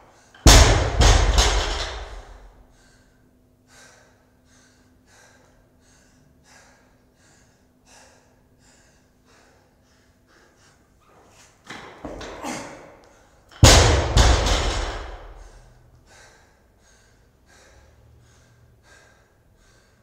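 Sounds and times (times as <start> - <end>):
faint steady hum: 0.0 - 20.0
barbell dropped to the floor: 0.5 - 2.5, 13.6 - 15.4
person panting hard: 1.8 - 11.6, 14.4 - 20.0.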